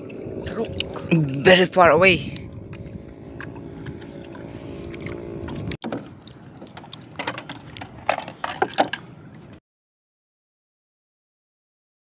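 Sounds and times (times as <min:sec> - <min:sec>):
boat engine running: 0:00.0 - 0:09.6
water noise: 0:00.0 - 0:09.6.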